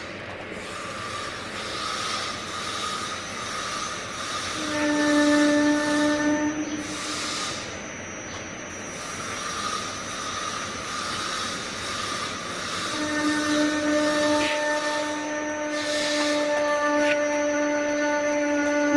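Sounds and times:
machine running with steady hiss: 0:00.0 - 0:18.9
held tone: 0:04.5 - 0:18.9.

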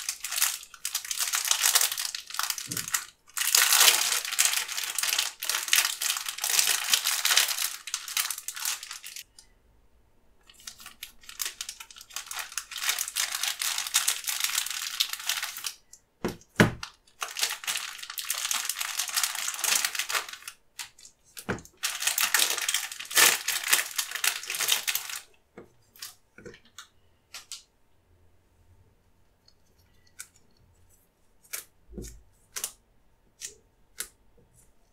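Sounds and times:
plastic wrapper crinkling: 0:00.0 - 0:09.3, 0:10.4 - 0:27.6.

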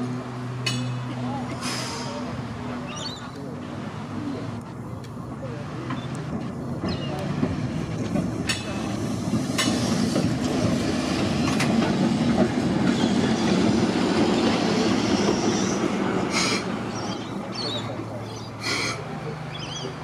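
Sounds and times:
tram rumbling on rails: 0:00.0 - 0:20.0.

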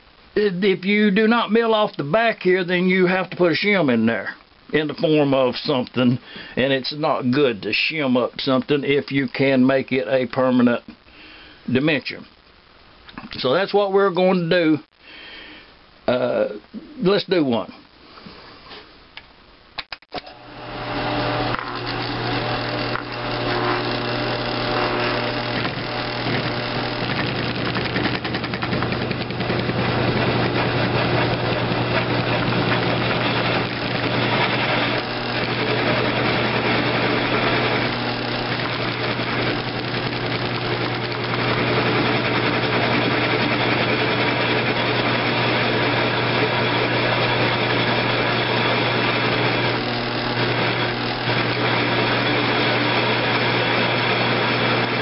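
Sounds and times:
end mill cutting metal: 0:20.2 - 0:55.0
motor hum: 0:20.2 - 0:55.0.

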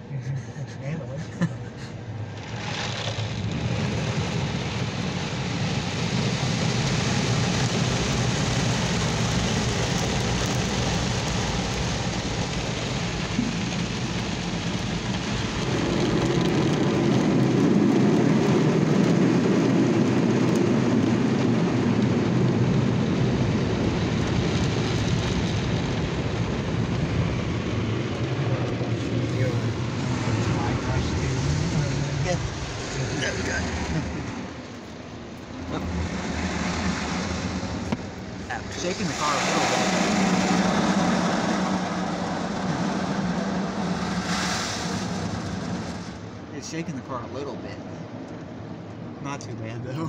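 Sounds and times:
car wash brushes scrubbing: 0:01.3 - 0:07.6
water spray on car: 0:01.4 - 0:46.8.

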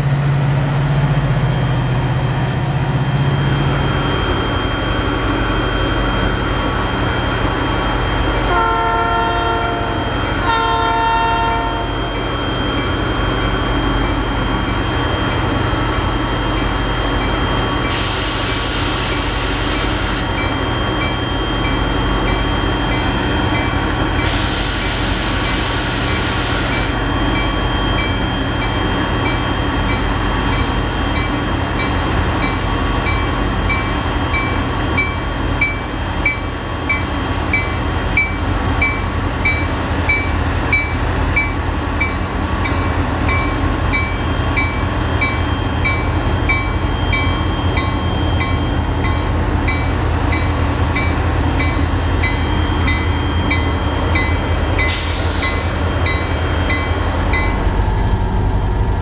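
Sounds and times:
locomotive bell ringing: 0:19.0 - 0:24.4, 0:25.4 - 0:57.7
air hiss bursts: 0:24.3 - 0:26.9.

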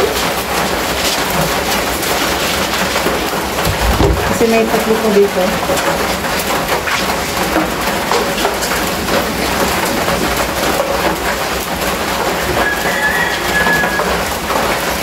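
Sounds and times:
rain on a metal roof: 0:00.0 - 0:15.0.

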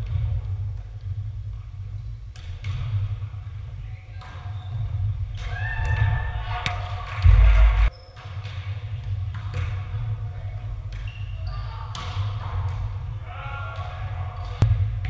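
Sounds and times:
steady low rumble: 0:07.1 - 0:07.9.

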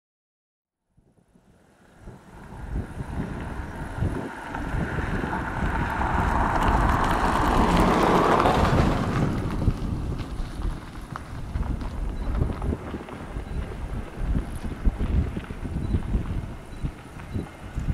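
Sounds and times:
wind buffeting microphone: 0:01.0 - 0:17.9.

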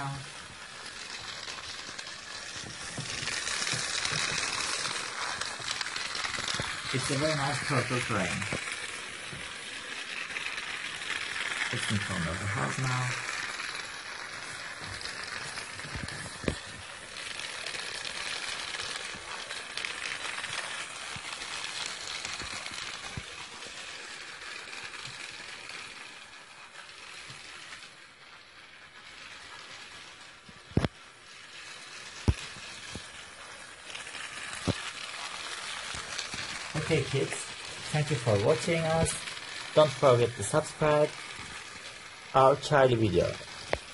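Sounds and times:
toy train running on track: 0:00.0 - 0:43.9.

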